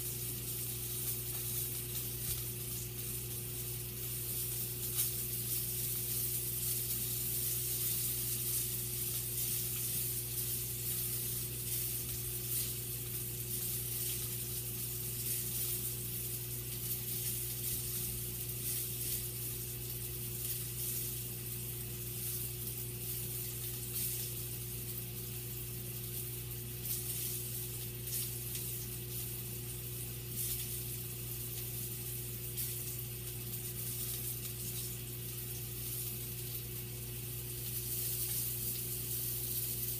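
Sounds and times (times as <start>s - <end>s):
sausages sizzling in a pan: 0.0s - 39.9s.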